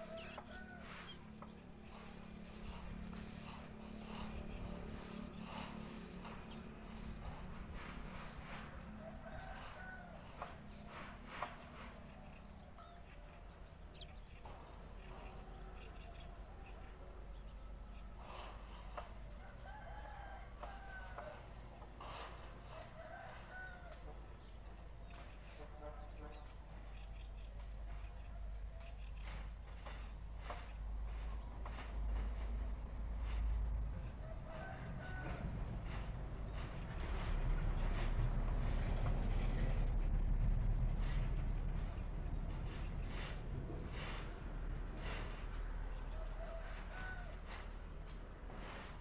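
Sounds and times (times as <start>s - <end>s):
steady high hum: 0.0s - 19.4s, 29.2s - 49.0s
distant bird calls: 0.0s - 49.0s
low rumble: 34.9s - 46.4s.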